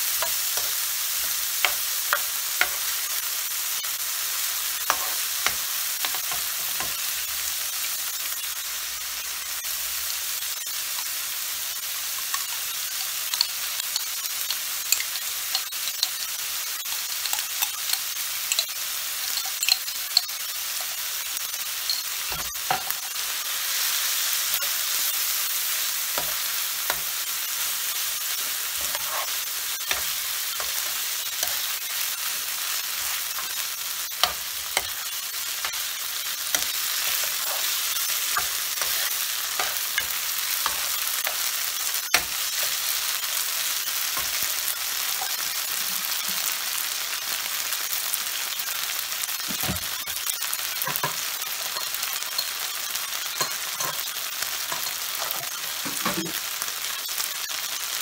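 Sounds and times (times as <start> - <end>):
meat and onion sizzling: 0.0 - 58.0
metal spoon scraping a pan: 0.1 - 2.9, 4.8 - 7.0, 12.1 - 23.2, 24.4 - 25.3, 26.1 - 43.1, 49.5 - 56.4.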